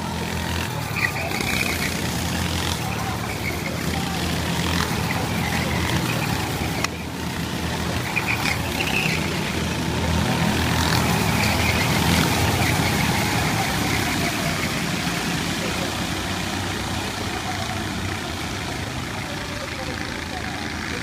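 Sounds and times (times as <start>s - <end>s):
racing kart engines buzzing: 0.0s - 21.0s.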